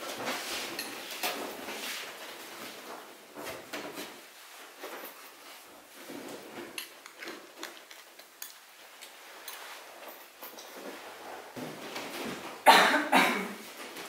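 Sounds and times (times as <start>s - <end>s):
clothing rustling: 0.0s - 12.7s, 13.5s - 14.0s
feet shuffling on wooden floor: 9.2s - 12.7s.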